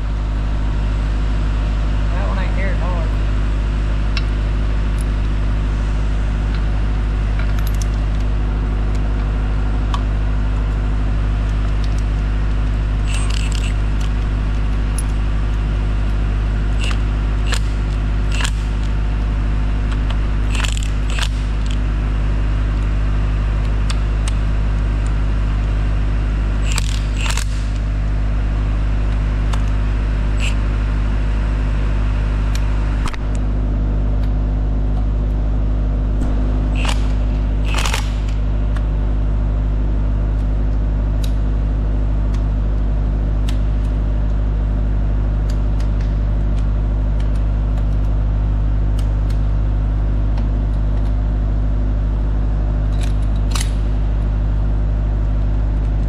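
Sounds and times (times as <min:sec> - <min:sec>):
loud steady low hum: 0:00.0 - 0:56.0
metal tools clinking and rattling: 0:13.1 - 0:15.3, 0:20.5 - 0:21.8.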